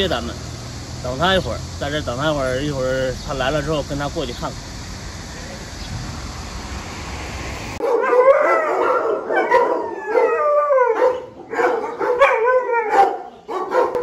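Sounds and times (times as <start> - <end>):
dogs howling and whining: 7.8 - 14.0.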